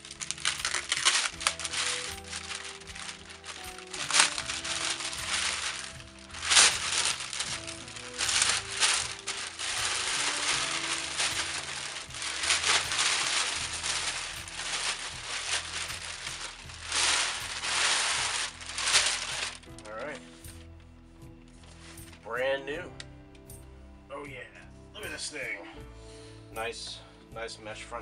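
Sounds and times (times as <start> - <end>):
plastic bag crinkling: 0.0 - 20.7
quiet music: 0.0 - 28.0.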